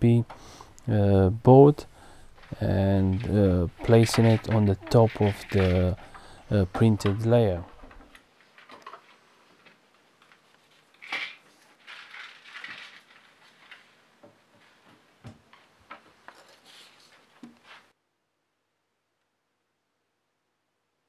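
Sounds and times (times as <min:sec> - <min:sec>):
paper rustling: 0:02.1 - 0:17.9.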